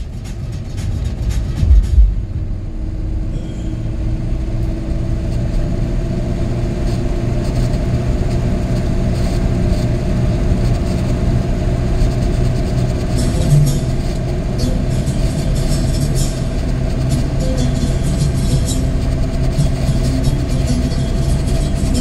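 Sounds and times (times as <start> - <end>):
steady hum: 0.0 - 22.0
vehicle engine and road rumble: 0.0 - 22.0.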